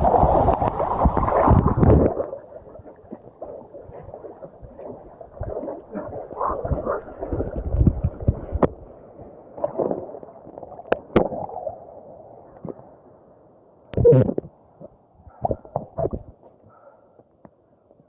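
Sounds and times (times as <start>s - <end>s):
muffled seawater sloshing: 0.0s - 10.6s.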